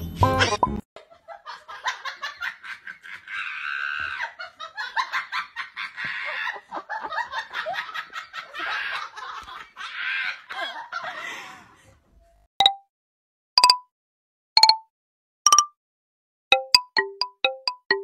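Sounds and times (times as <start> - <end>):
person laughing: 0.2 - 11.8.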